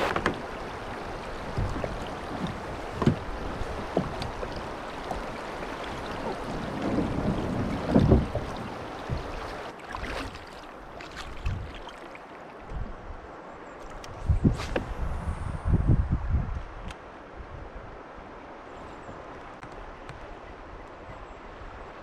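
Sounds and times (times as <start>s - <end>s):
wind on microphone: 0.0s - 9.7s, 11.2s - 11.8s, 12.6s - 13.3s, 14.0s - 19.2s
kayak knocks and thumps: 0.0s - 11.9s
kayak paddle strokes: 0.0s - 12.8s
water over rocky creek: 0.0s - 15.5s.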